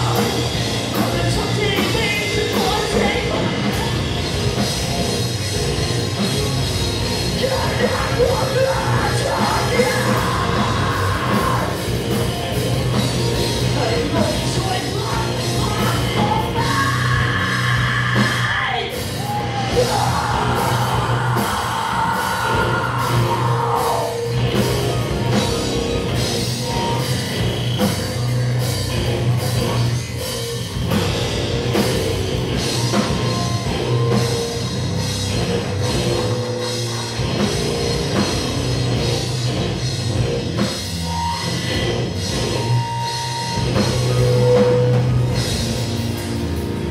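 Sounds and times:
bass guitar: 0.0s - 46.9s
drum kit: 0.0s - 46.9s
electric guitars: 0.0s - 46.9s
person singing and yelling: 7.3s - 12.0s, 13.7s - 24.5s.

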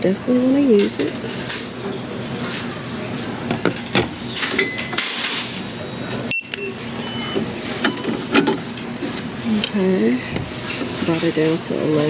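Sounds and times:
store background hum: 0.0s - 12.0s
checkout scanner beeps: 6.3s - 8.3s.

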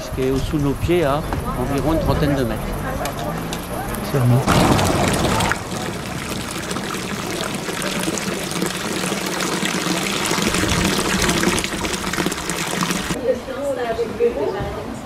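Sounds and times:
water pouring into fountain basin: 4.1s - 13.2s.

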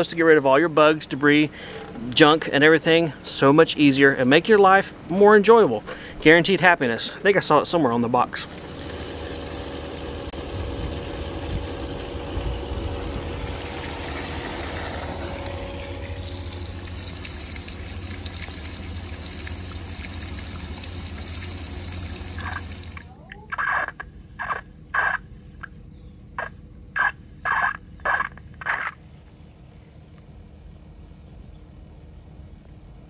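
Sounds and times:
pump motor hum: 0.0s - 23.2s
water pouring onto grass: 10.3s - 23.1s.

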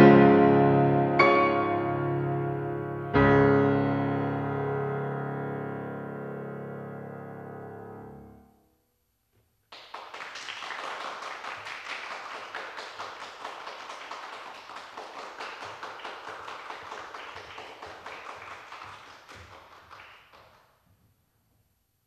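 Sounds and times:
piano chord: 0.0s - 8.7s
audience applause: 9.7s - 20.6s.

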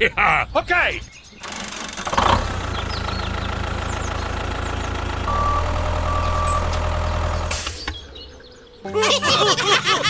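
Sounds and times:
tractor engine running: 1.3s - 8.8s
short beeps: 5.3s - 7.0s.

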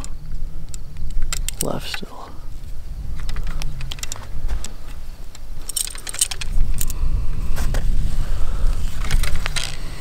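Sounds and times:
metallic clicks and rattles of bow: 0.0s - 2.2s, 3.1s - 7.0s, 9.0s - 9.9s
wind rumble on microphone: 2.3s - 10.0s.

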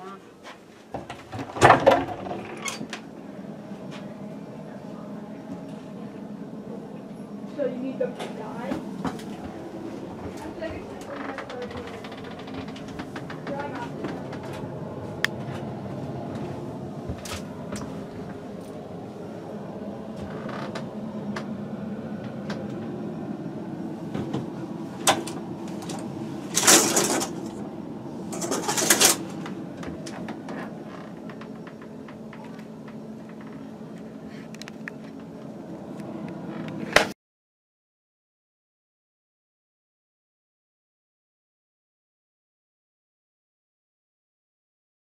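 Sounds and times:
low cabin hum: 1.0s - 37.2s.

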